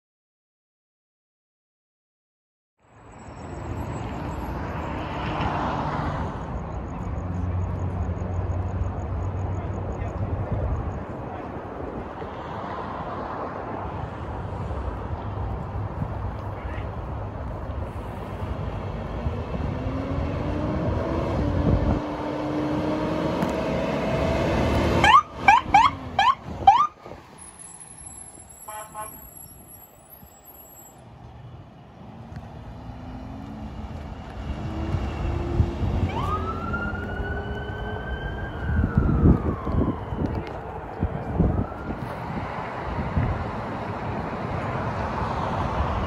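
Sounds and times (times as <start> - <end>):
ambulance engine revving: 17.7 - 28.4, 32.0 - 46.0
rising siren yelps: 24.9 - 27.0, 36.0 - 42.0
siren wailing: 24.9 - 27.0, 34.7 - 42.4.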